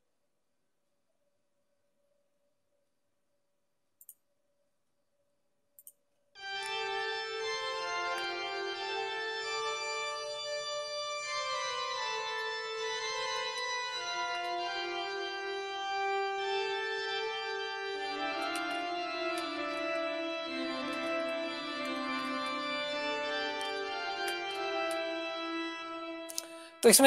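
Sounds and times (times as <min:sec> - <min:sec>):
cathedral organ chords: 0:06.4 - 0:26.8.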